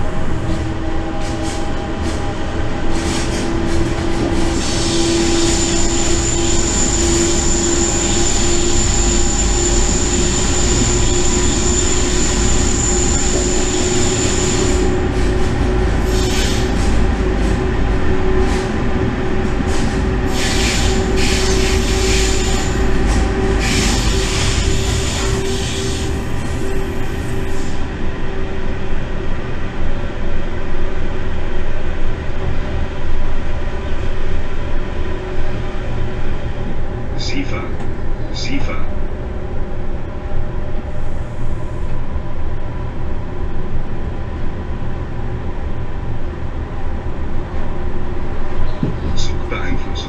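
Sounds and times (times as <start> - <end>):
wheels rumbling on track: 0.0 - 37.2
high wheel squeal: 4.5 - 15.2, 20.3 - 27.8.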